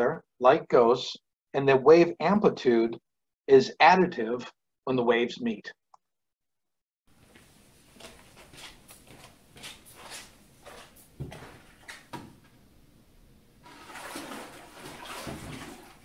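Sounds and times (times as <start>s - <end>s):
water splashing in a tank: 9.5s - 12.6s, 13.6s - 16.0s.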